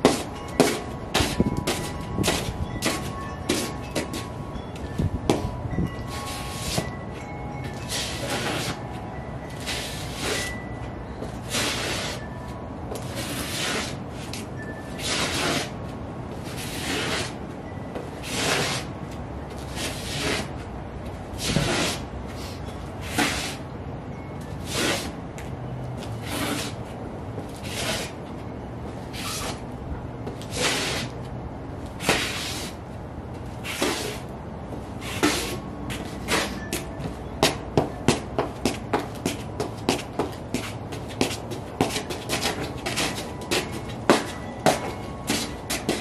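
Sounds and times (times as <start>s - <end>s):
boot soles scraping on concrete: 0.0s - 10.6s, 11.2s - 17.4s, 18.2s - 18.9s, 19.5s - 23.6s, 24.6s - 25.2s, 26.0s - 29.6s, 30.2s - 46.0s
outdoor background hum: 0.0s - 46.0s.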